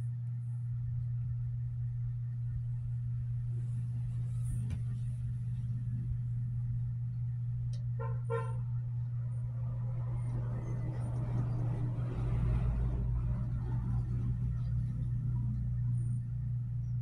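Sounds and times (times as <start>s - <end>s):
steady low hum: 0.0s - 17.0s
vehicle horn toots: 8.0s - 8.7s
vehicle engine and tyre noise: 8.0s - 17.0s.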